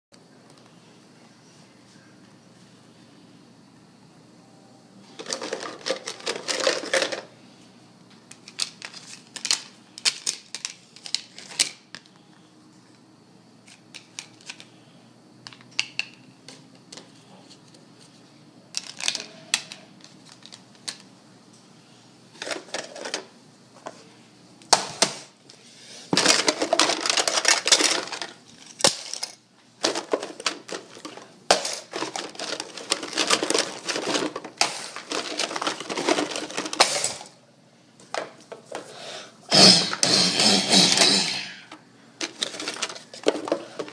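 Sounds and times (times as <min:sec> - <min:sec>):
plastic toy pieces clicking: 0:08.3 - 0:11.8, 0:18.8 - 0:21.0, 0:26.2 - 0:37.3.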